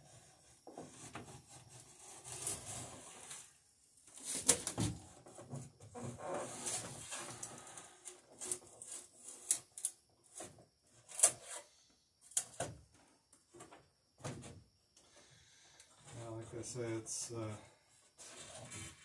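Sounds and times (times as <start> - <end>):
drawknife scraping wood: 0.7 - 3.5, 11.1 - 11.7.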